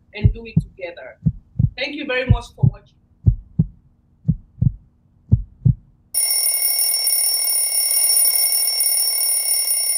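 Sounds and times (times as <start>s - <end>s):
heartbeat thumps: 0.2s - 6.0s
high-pitched electronic ringing tone: 6.2s - 9.9s.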